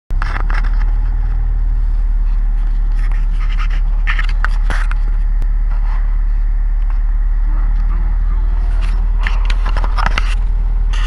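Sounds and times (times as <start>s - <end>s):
boat engine rumbling: 0.1s - 11.0s
gear scraping and knocking: 0.1s - 11.0s.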